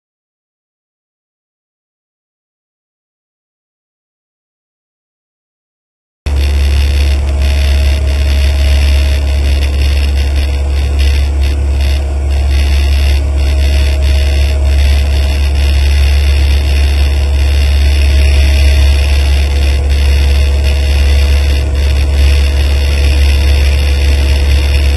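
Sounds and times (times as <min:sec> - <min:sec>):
aircraft engine drone in cabin: 0:06.3 - 0:24.9
faint steady whine: 0:06.3 - 0:24.9.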